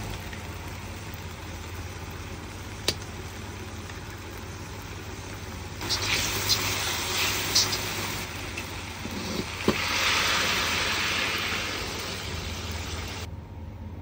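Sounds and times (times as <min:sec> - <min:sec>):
food sizzling in a wok: 0:03.1 - 0:13.3.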